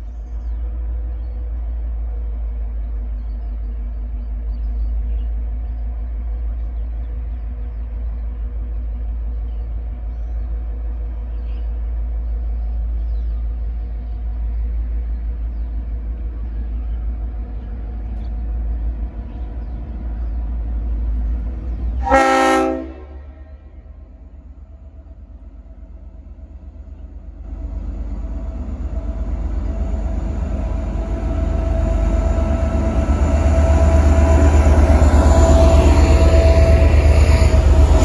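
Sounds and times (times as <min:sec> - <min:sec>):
locomotive engine drone: 0:00.0 - 0:38.0
air horn blast: 0:22.0 - 0:23.5.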